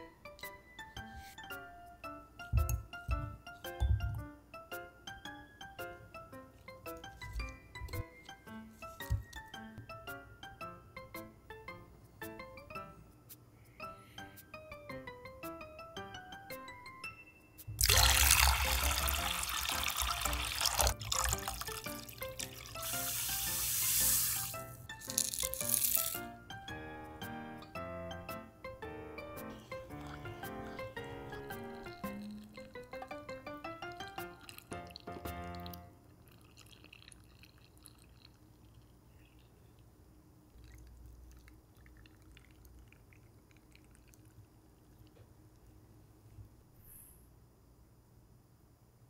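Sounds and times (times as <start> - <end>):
light background music: 0.0 - 35.9
liquid trickling into a glass jar: 17.8 - 26.2, 31.6 - 33.2, 34.0 - 39.6, 40.6 - 45.1
water pouring into a saucepan: 17.8 - 26.2, 34.2 - 38.8.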